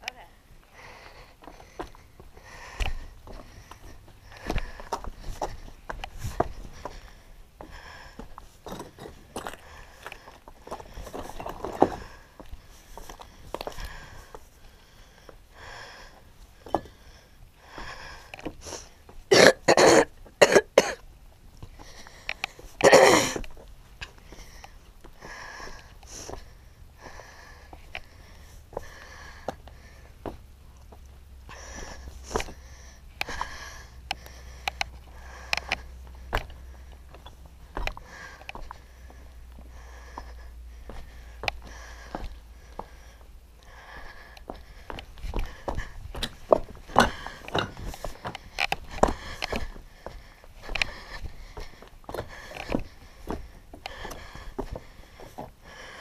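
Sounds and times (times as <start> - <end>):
soft breathy sounds: 0.1 - 19.3, 21.6 - 56.0
footsteps crunching on rock rubble: 1.6 - 14.4, 40.0 - 43.1, 44.4 - 55.6
person coughing: 19.3 - 21.0, 22.8 - 23.4.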